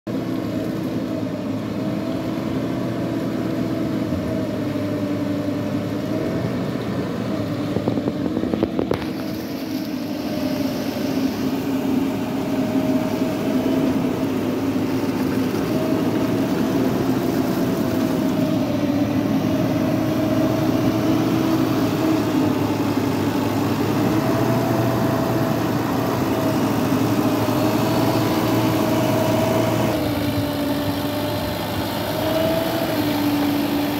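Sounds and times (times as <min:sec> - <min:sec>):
diesel engine running under load: 0:00.1 - 0:33.9.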